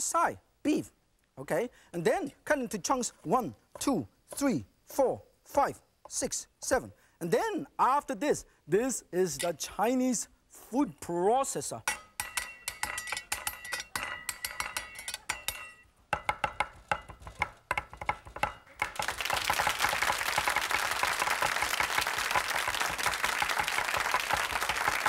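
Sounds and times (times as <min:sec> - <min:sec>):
cleaver chopping on wooden board: 0:16.1 - 0:19.0.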